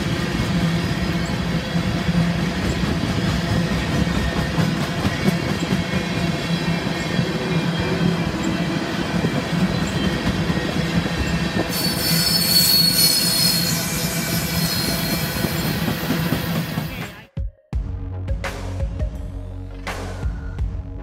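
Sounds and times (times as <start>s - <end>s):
train wheels rumbling on rails: 0.0s - 17.2s
metallic wheel squeal: 9.6s - 16.6s.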